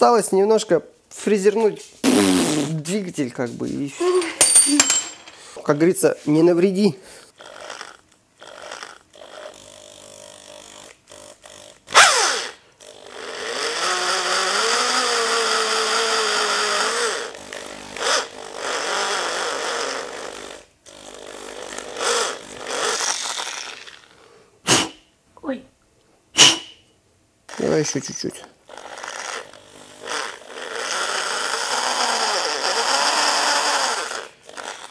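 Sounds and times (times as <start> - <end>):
electric drill milling metal: 7.4 - 23.9, 28.7 - 34.9.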